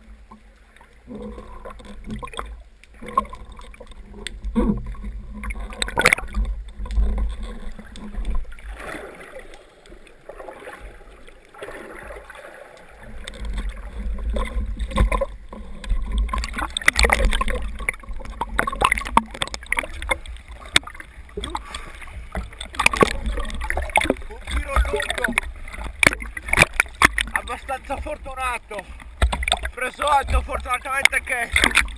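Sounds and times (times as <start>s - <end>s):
water sloshing and gurgling: 0.0s - 31.9s
scattered clicks: 29.2s - 31.9s.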